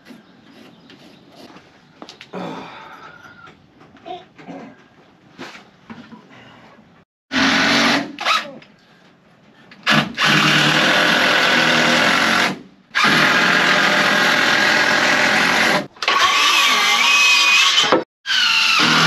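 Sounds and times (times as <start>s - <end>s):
drill driving screws into wood: 7.3s - 8.5s, 9.8s - 19.0s.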